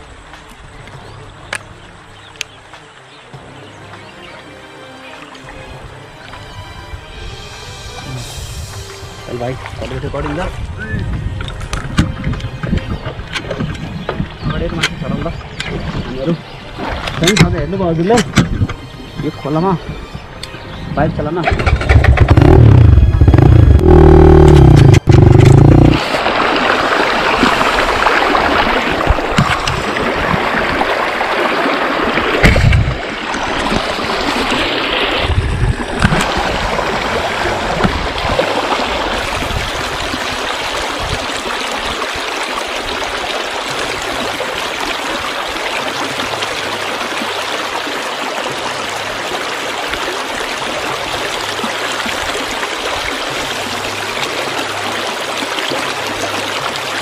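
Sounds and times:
river water over rocks: 0:21.4 - 0:57.0
low thumps and knocks: 0:32.3 - 0:34.0, 0:35.3 - 0:39.8.

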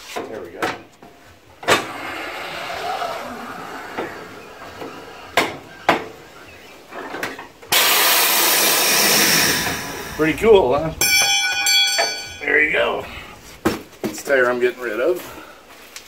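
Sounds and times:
loud steady hiss: 0:07.6 - 0:11.1.

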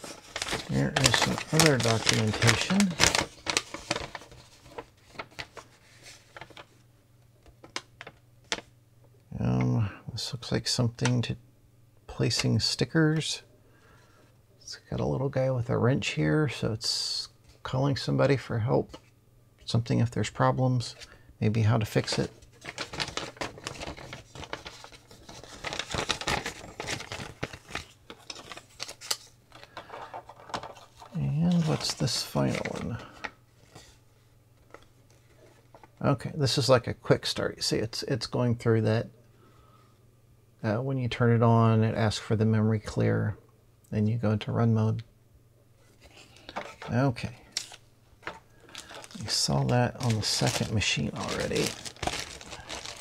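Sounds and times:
paper rustling and tapping: 0:00.0 - 0:06.7, 0:07.4 - 0:08.7, 0:22.0 - 0:33.8, 0:47.5 - 0:53.0.

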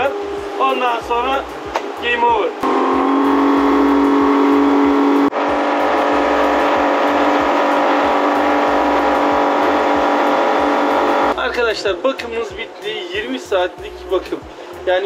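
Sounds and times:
outboard motor droning: 0:00.0 - 0:01.7, 0:02.6 - 0:11.4.

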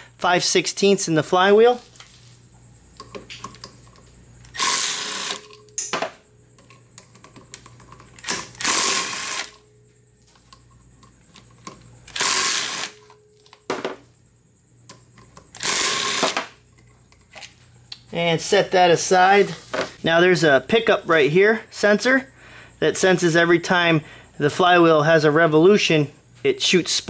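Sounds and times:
power tool spinning out bolts: 0:04.5 - 0:05.7, 0:07.7 - 0:09.6, 0:12.0 - 0:13.2, 0:15.5 - 0:16.5.

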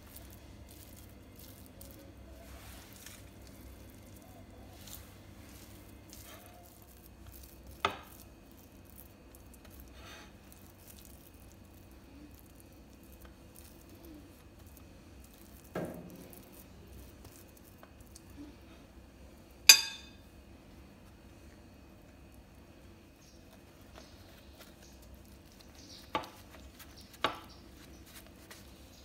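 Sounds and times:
spoon scraping and squishing topping: 0:00.0 - 0:18.7, 0:23.2 - 0:29.0
spoon clinking against dishes: 0:19.7 - 0:20.2.

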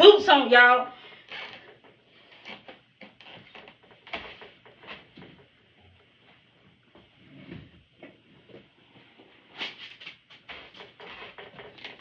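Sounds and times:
quiet footsteps: 0:01.0 - 0:09.5.

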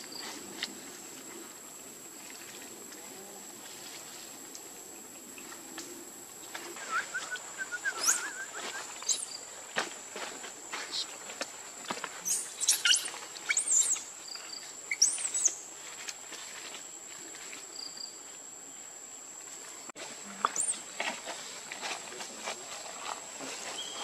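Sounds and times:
short high chirping calls: 0:06.8 - 0:09.4, 0:12.2 - 0:14.0, 0:14.9 - 0:15.6.

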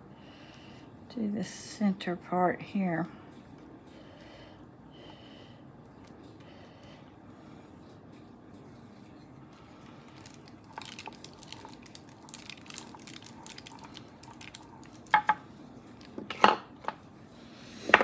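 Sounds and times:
plastic sheet clicks and crinkles: 0:10.1 - 0:15.2.

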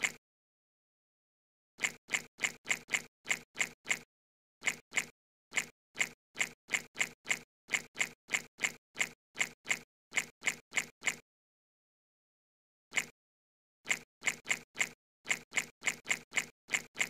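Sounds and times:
insect drinking sound effect: 0:01.8 - 0:04.0, 0:04.6 - 0:11.2, 0:13.9 - 0:17.0.

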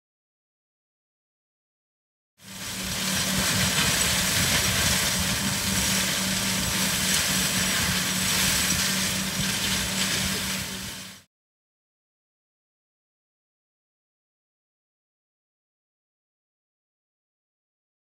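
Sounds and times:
flail mulcher running: 0:02.4 - 0:11.2.

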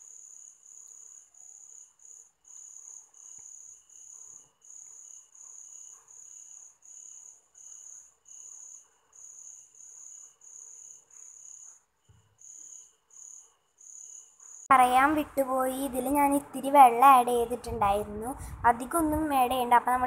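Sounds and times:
cricket chirping: 0:00.0 - 0:14.7.

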